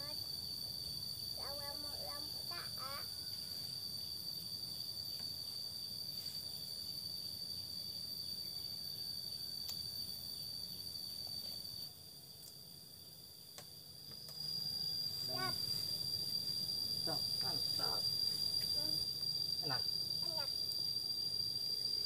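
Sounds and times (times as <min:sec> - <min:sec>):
insects droning: 0:00.0 - 0:22.0.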